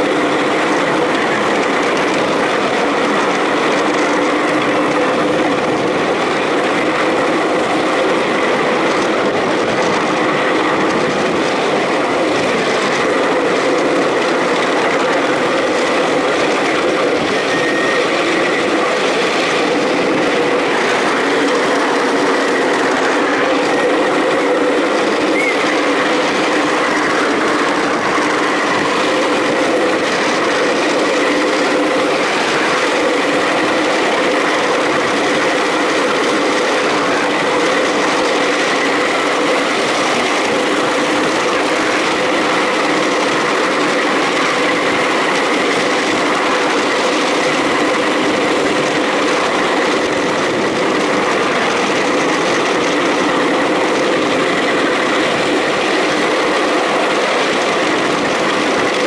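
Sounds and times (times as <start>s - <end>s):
small locomotive whine: 0.0s - 59.0s
wheels running on rails: 0.0s - 59.0s.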